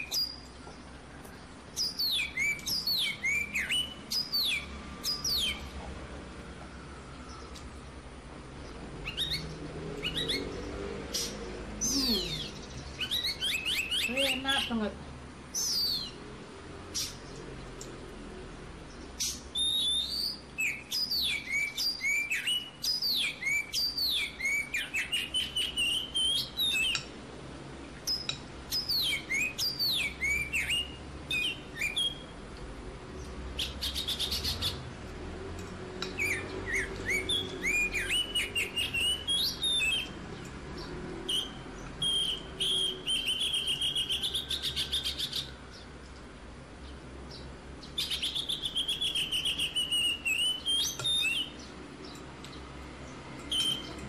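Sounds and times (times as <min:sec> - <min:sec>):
small birds chirping and trilling: 0:00.0 - 0:54.0.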